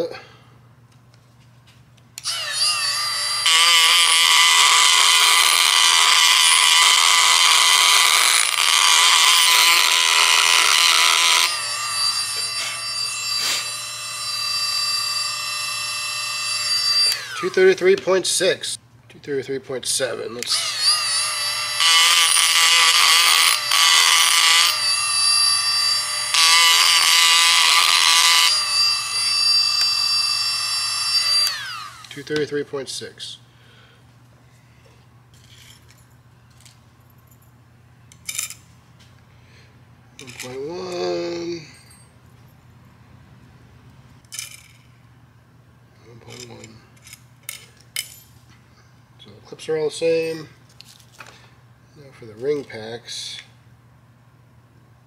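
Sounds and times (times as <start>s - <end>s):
rotary tool grinding metal: 2.2s - 18.4s, 20.1s - 32.4s, 46.2s - 47.6s.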